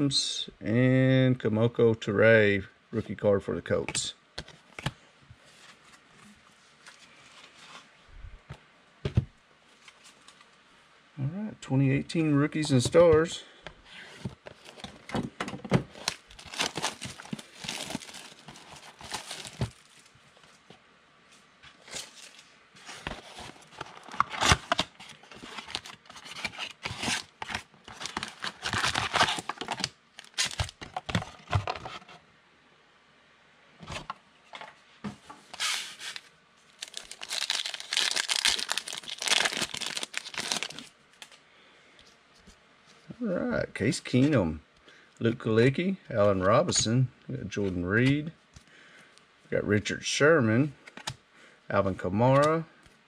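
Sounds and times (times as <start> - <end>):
foil card pack crinkling: 15.9 - 20.1, 21.9 - 31.9, 35.5 - 41.4
plastic shrink-wrap crinkling and tearing: 15.9 - 20.2, 23.1 - 31.0, 35.6 - 41.4.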